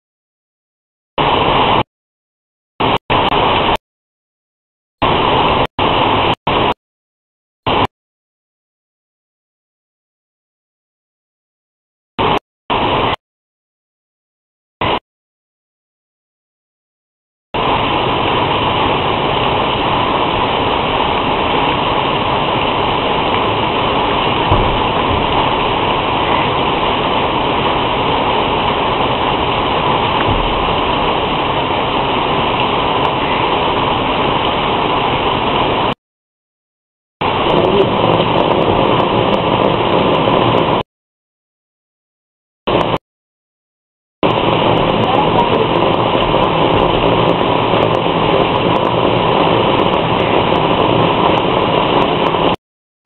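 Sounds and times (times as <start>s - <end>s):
heavy rain hiss: 5.0s - 6.8s, 17.6s - 36.0s, 37.2s - 40.8s, 44.2s - 52.6s.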